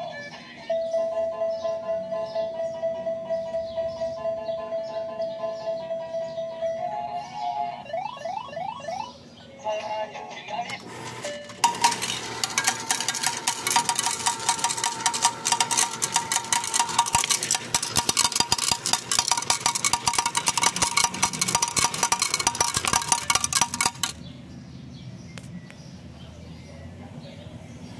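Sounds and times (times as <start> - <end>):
slot machine electronic tone: 10.8 - 24.2
coins clattering into metal tray: 11.0 - 24.2.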